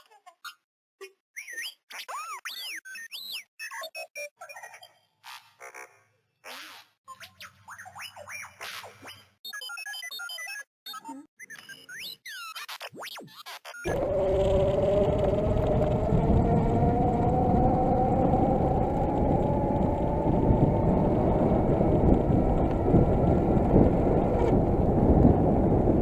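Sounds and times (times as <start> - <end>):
electric hub motor whining: 13.9 - 26.0
tyres on dirt track: 13.9 - 26.0
wind rushing on microphone: 13.9 - 26.0.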